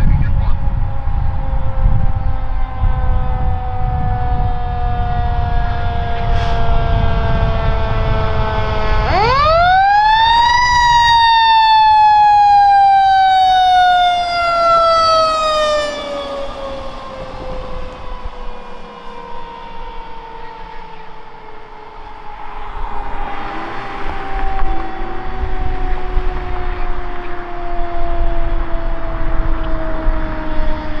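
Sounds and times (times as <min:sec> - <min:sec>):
mechanical siren wailing: 0:00.0 - 0:31.0
low engine rumble: 0:11.7 - 0:30.9.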